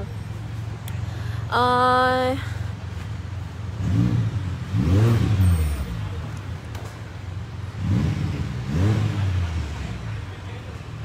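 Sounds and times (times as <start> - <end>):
motorcycle engine revving: 3.6 - 10.6.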